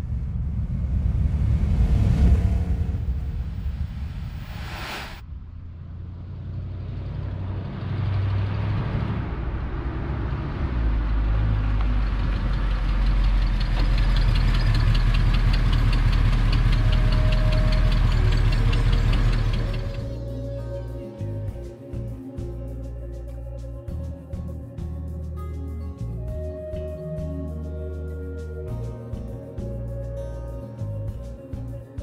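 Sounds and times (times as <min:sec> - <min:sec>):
car engine running: 0:09.2 - 0:20.3.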